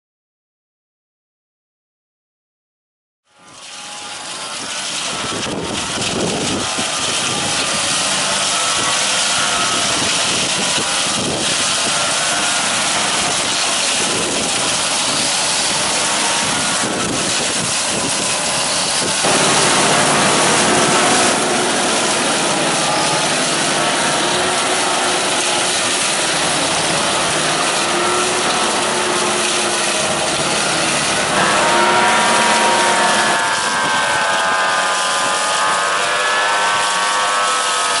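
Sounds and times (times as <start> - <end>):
wavering whine: 3.5 - 38.0
hedge cutter blades chopping branches: 3.6 - 38.0
vehicle engine: 11.9 - 38.0.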